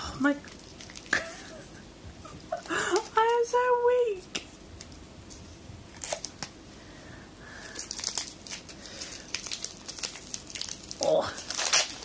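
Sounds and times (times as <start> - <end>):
packaging crinkling: 0.4 - 1.6, 5.9 - 6.5, 7.5 - 12.0.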